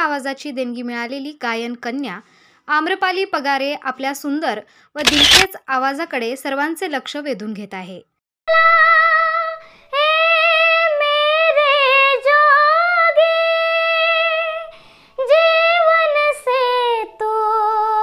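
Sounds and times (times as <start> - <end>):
girl singing: 8.5 - 18.0.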